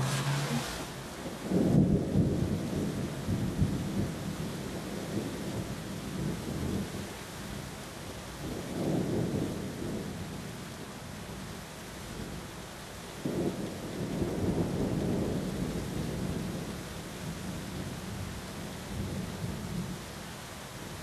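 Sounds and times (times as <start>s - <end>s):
thunder rumble: 0.0s - 6.9s
steady rain falling: 0.0s - 21.0s.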